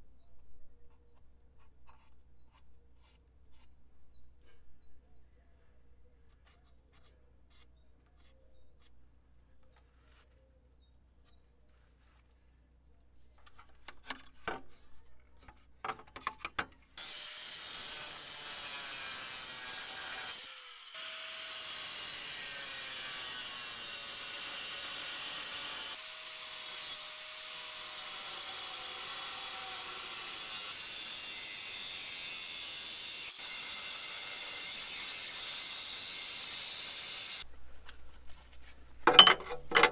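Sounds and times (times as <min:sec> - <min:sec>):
light scratches: 0:00.8 - 0:05.0, 0:06.1 - 0:10.6
angle grinder cutting steel: 0:17.0 - 0:37.4.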